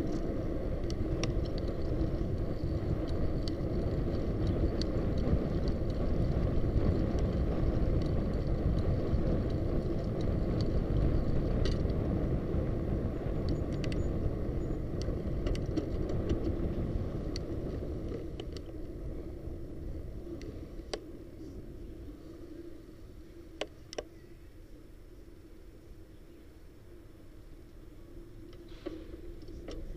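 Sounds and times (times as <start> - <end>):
light clicks and ticks: 0.0 - 12.0
bicycle tyre rumble on pavement: 0.0 - 23.9, 26.8 - 29.9
wind rushing over microphone: 0.0 - 24.8.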